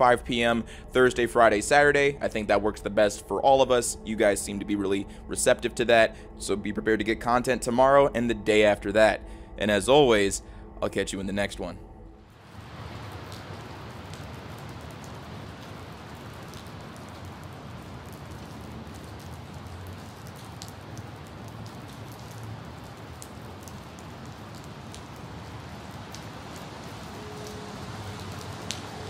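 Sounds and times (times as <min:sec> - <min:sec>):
low rumble: 0:00.0 - 0:13.9
rain on a hard surface: 0:12.2 - 0:29.0.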